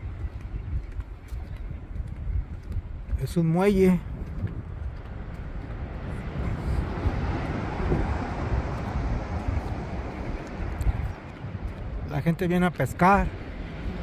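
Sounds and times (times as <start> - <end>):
steady outdoor noise: 0.0 - 14.0
broad rushing noise: 3.9 - 14.0.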